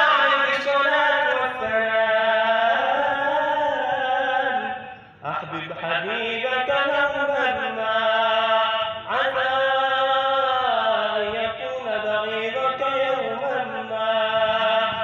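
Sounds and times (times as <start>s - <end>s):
man chanting into a microphone: 0.0s - 15.0s.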